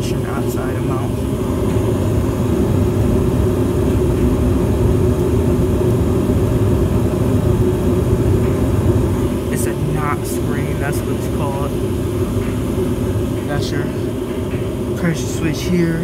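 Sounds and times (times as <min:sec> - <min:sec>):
gas furnace deep rumble: 0:00.0 - 0:16.0.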